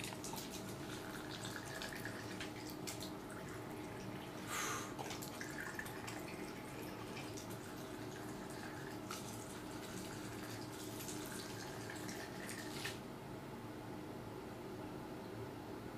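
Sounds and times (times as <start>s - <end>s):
liquid pouring into glasses: 0.0s - 4.3s, 5.0s - 13.0s.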